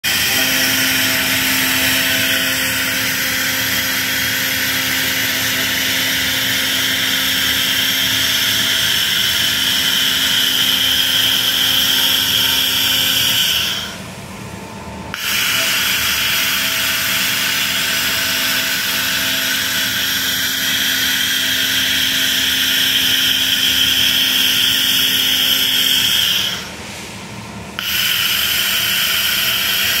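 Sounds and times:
laser hissing and buzzing: 0.1 - 14.0, 15.2 - 26.7, 27.8 - 30.0.

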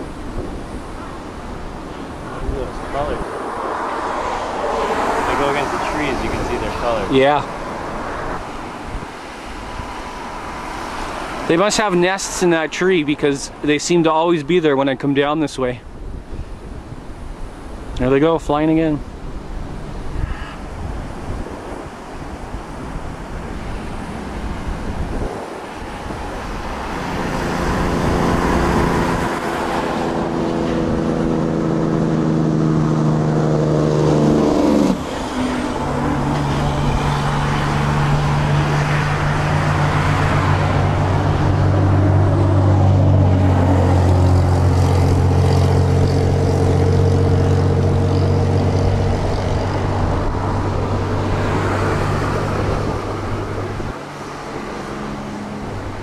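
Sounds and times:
rushing noise: 0.0 - 14.4, 19.2 - 56.0
vehicle engine running loudly: 26.1 - 56.0.

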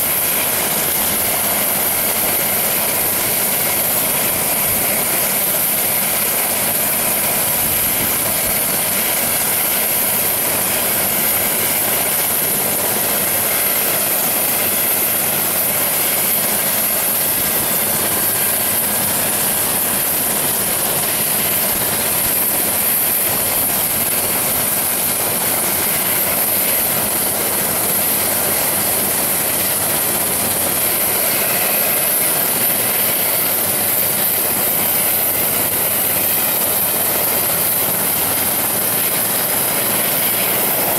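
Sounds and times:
helicopter turbine whine: 0.0 - 40.9.

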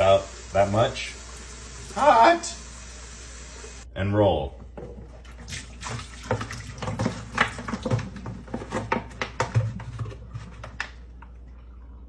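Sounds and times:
water splashing: 5.1 - 8.1.

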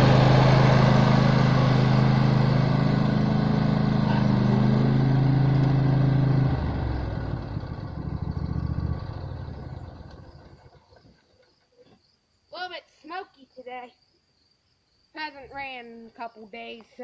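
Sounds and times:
riding lawn mower engine: 0.0 - 11.6.

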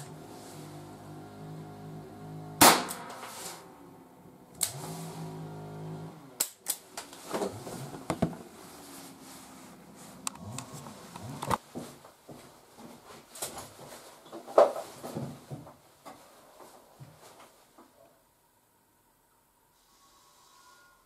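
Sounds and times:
gunshot: 2.6 - 3.2.

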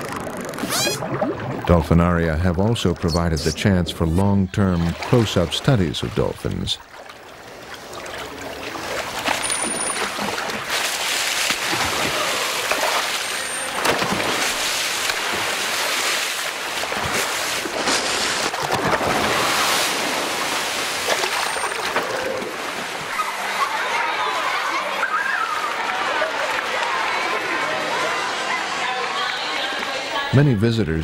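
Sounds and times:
water splashing: 0.0 - 24.7.

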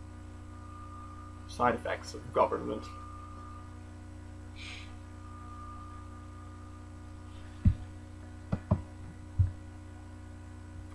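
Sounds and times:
low electrical hum: 0.0 - 10.9
dull knocks: 7.6 - 7.9, 8.5 - 9.6.

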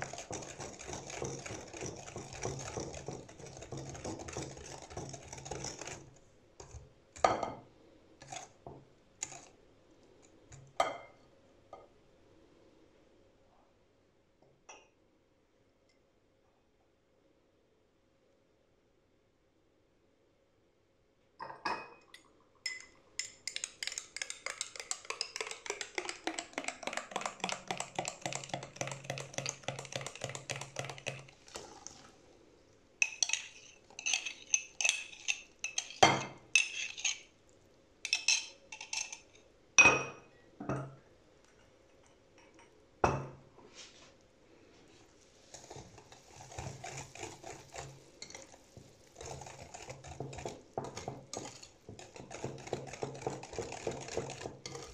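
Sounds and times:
utensil mixing in a bowl: 0.0 - 7.5, 8.2 - 10.8, 22.2 - 32.4, 33.0 - 39.4, 44.8 - 54.9.

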